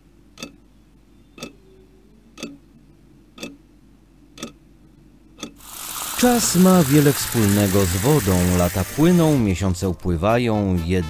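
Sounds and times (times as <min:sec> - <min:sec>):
clock ticking: 0:00.3 - 0:00.6, 0:01.4 - 0:01.6, 0:02.4 - 0:02.6, 0:03.3 - 0:03.7, 0:04.3 - 0:04.6, 0:05.4 - 0:06.1.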